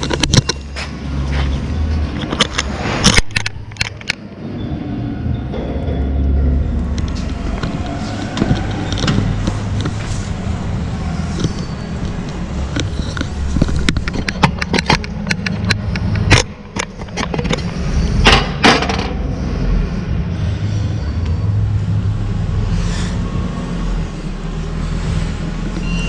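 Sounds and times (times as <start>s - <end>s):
sharp clicks and knocks: 0.0s - 4.3s, 6.7s - 10.2s, 11.3s - 19.2s
machinery humming: 4.2s - 26.0s.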